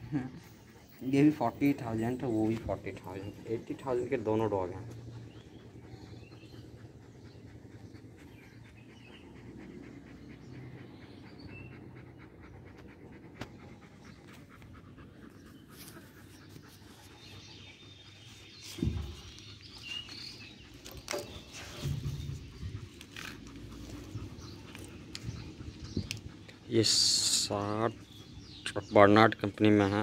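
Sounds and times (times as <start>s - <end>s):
dog panting: 0.0s - 30.0s
low thump: 18.8s - 19.3s.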